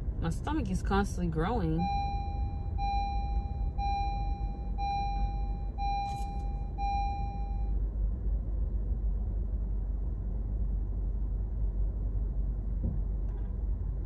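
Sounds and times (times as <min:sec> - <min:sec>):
car cabin road and engine rumble: 0:00.0 - 0:14.0
electronic beep: 0:01.8 - 0:07.8.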